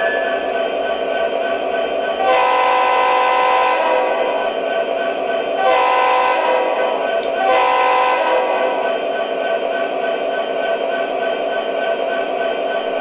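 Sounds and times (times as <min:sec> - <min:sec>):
steady ringing: 0:00.0 - 0:02.2.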